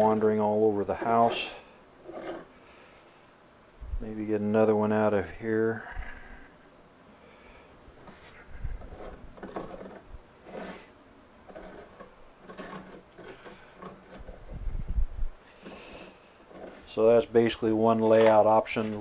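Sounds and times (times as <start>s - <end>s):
dividers scratching wood: 0.0s - 2.9s, 8.0s - 14.8s, 15.4s - 19.0s.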